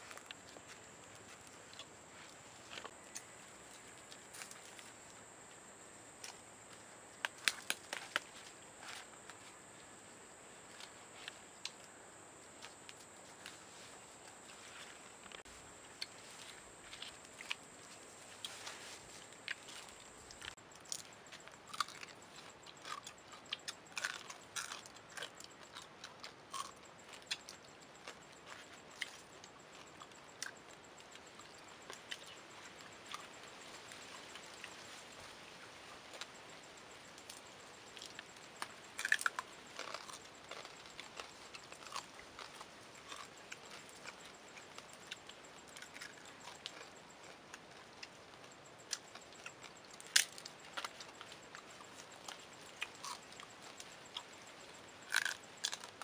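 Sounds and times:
shells crunching while chewed: 0:19.3 - 0:34.8, 0:36.1 - 0:56.0.

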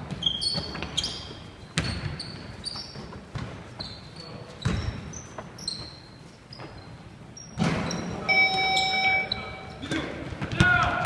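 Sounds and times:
sneakers squeaking on floor: 0:00.0 - 0:10.6
basketball bouncing on wooden floor: 0:01.8 - 0:03.6, 0:04.6 - 0:05.0.

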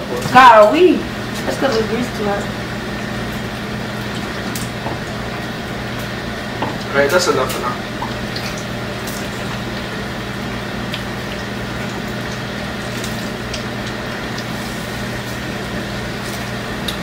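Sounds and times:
deep-frying sizzle with pops: 0:00.0 - 0:17.0
steady low hum: 0:00.0 - 0:17.0.

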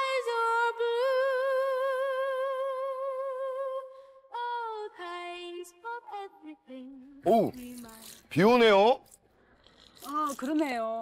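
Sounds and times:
woman singing unaccompanied: 0:00.0 - 0:08.2.

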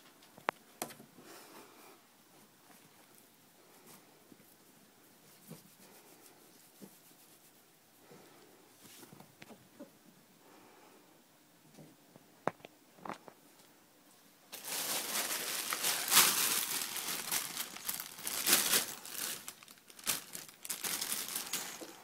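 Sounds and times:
plastic bag crinkling: 0:14.5 - 0:22.0.

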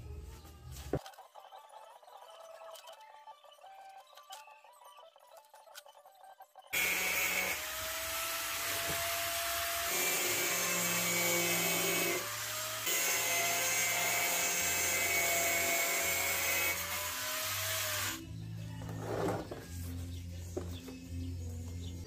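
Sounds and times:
angle grinder cutting plastic: 0:06.8 - 0:18.3.

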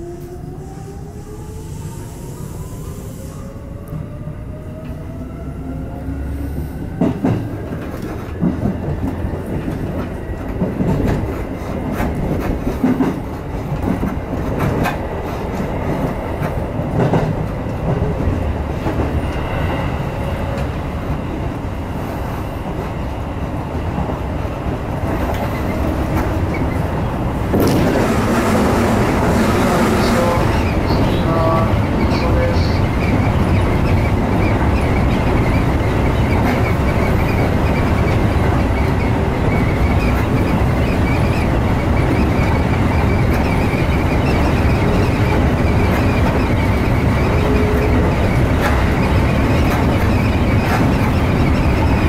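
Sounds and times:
wheels rumbling on rail: 0:00.0 - 0:52.0
wheels clacking over rail joints: 0:25.0 - 0:52.0.

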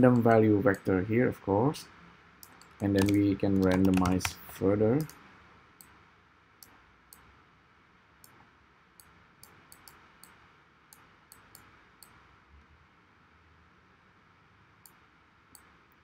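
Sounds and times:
computer mouse clicks: 0:02.4 - 0:05.2, 0:09.0 - 0:12.2.

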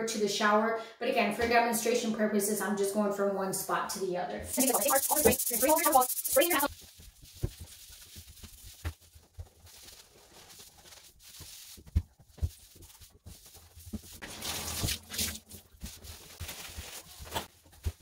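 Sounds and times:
scrubbing pad on shower wall: 0:04.5 - 0:18.0.

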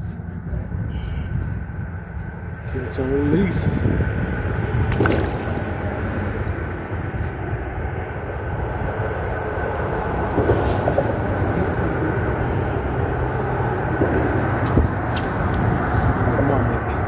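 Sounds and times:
road traffic rumble on bridge: 0:00.0 - 0:17.0.

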